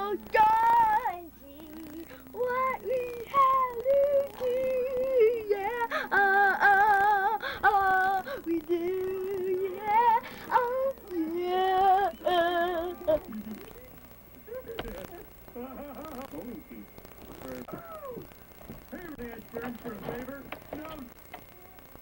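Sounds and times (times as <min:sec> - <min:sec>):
boy singing mock-operatic notes: 0:00.0 - 0:13.9.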